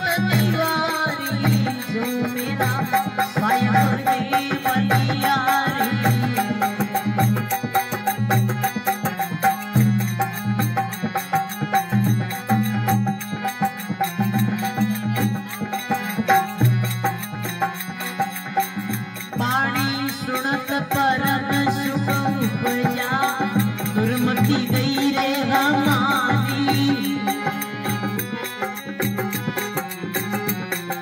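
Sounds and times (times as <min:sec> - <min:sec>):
man singing: 0:00.0 - 0:07.0, 0:19.3 - 0:28.0
harmonium playing: 0:00.0 - 0:31.0
rhythmic percussion: 0:00.0 - 0:31.0.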